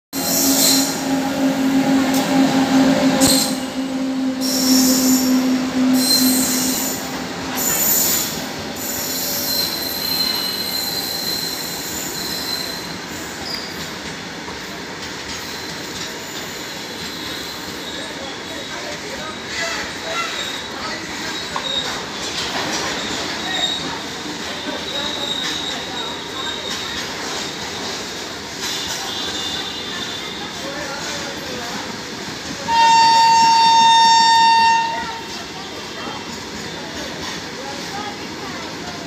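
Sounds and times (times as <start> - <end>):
train wheels rumbling on track: 0.1 - 39.0
high wheel squeals: 0.2 - 13.8, 24.6 - 26.8.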